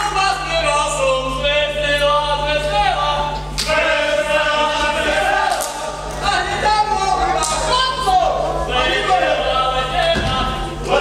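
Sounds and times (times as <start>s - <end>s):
group of voices singing: 3.6s - 6.6s.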